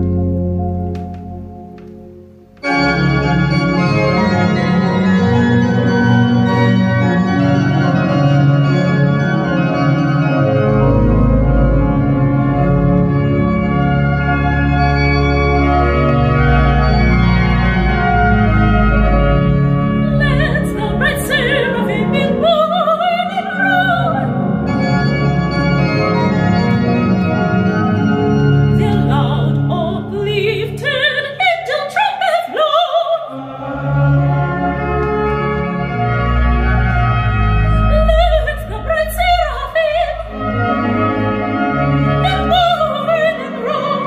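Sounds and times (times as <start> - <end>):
church organ chords: 0.0 - 31.8, 33.3 - 44.0
soprano singing with vibrato: 20.0 - 24.3, 28.8 - 33.6, 37.9 - 40.3, 42.2 - 44.0.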